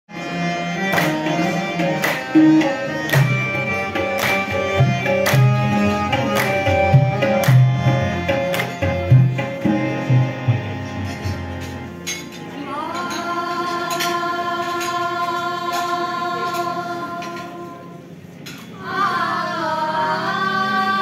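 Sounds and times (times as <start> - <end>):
harmonium notes: 0.1 - 21.0
tabla drumming: 0.7 - 12.1.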